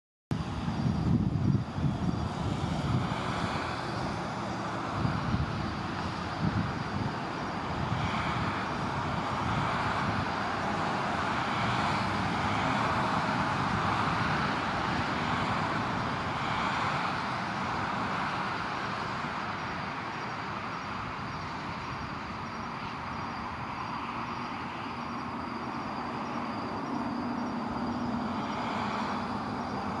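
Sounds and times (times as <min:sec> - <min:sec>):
outdoor rushing noise: 0:00.3 - 0:30.0.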